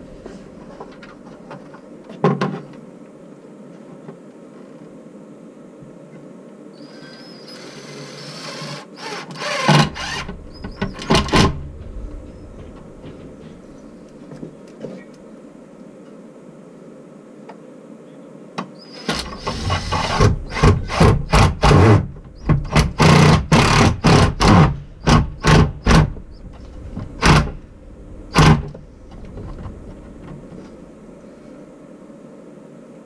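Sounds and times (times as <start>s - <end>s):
cordless drill driving screws: 7.6s - 10.3s, 19.0s - 22.0s, 22.7s - 26.0s.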